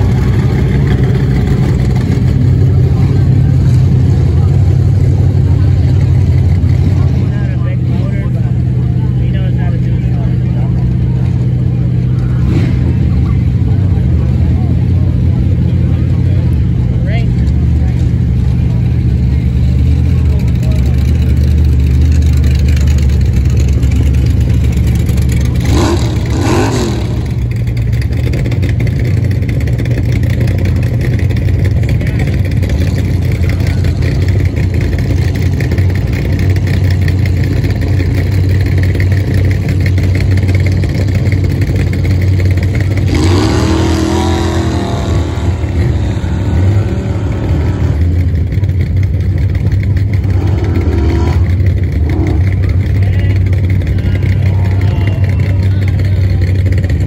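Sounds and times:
vehicle engine running loud: 0:00.0 - 0:57.0
voices: 0:00.0 - 0:57.0.

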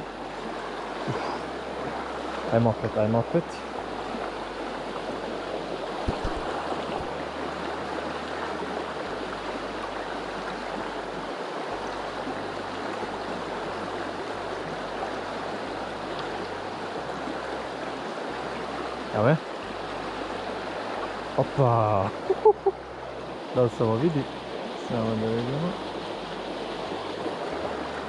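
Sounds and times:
river current rushing: 0:00.0 - 0:28.0
brief knock: 0:06.1 - 0:06.5.

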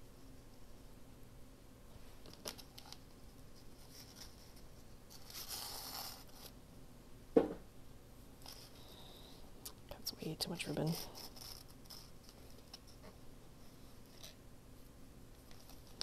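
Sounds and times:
single knock: 0:07.4 - 0:07.6.

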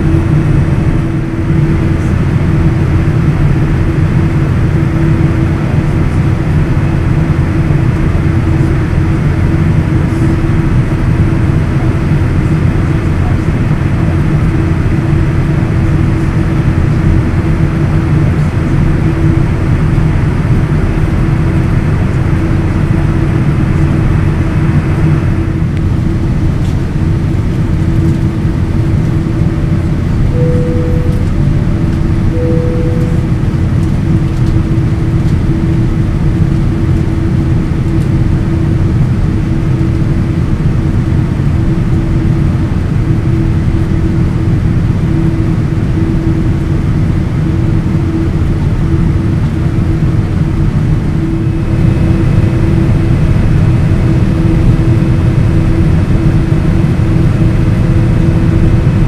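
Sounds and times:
airliner engines and gear rumbling: 0:00.0 - 0:59.0
constant low hum: 0:00.0 - 0:59.0
short beeps: 0:30.3 - 0:31.5, 0:32.3 - 0:33.4.

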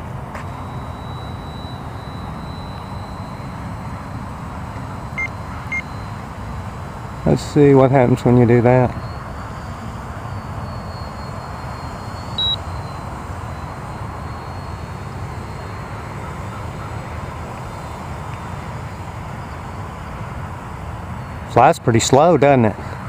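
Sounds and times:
distant model airplane engine drone: 0:00.0 - 0:23.0
steady outdoor rush: 0:00.0 - 0:23.0
thin high whine: 0:00.0 - 0:23.0.

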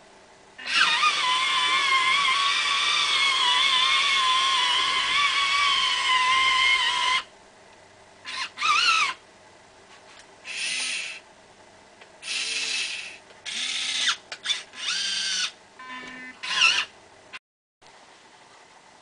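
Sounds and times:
small electric motors whining: 0:00.6 - 0:07.3, 0:08.3 - 0:09.2, 0:10.4 - 0:11.2, 0:12.2 - 0:16.9.

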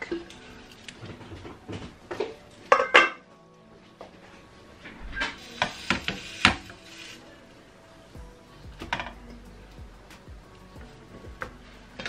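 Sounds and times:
quiet background music: 0:00.0 - 0:12.0.

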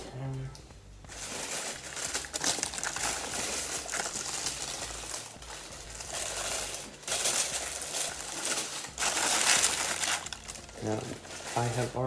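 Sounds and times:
tissue paper rustling and crinkling: 0:01.1 - 0:12.0.

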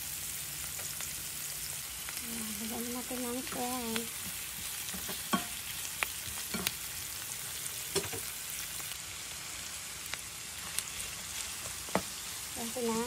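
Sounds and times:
food sizzling in oil: 0:00.0 - 0:13.0
spatula tapping pan: 0:03.5 - 0:05.6.

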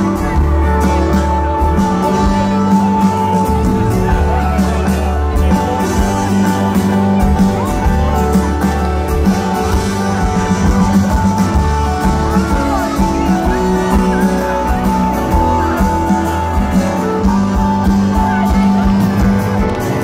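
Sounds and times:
live rock band: 0:00.0 - 0:20.0.

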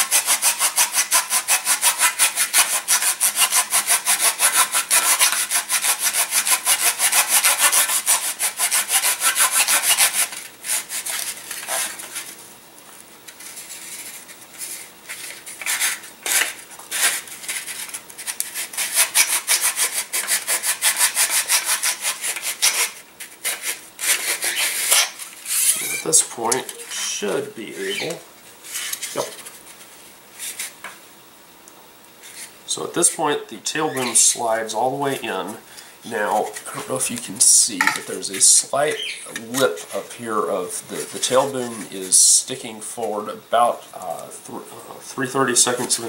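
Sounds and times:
sandpaper rasping: 0:00.0 - 0:12.3, 0:13.4 - 0:26.1.

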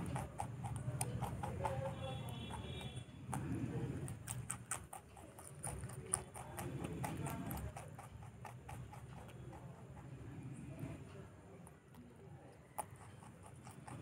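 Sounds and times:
rabbit chewing crunchy stems: 0:00.0 - 0:14.0.

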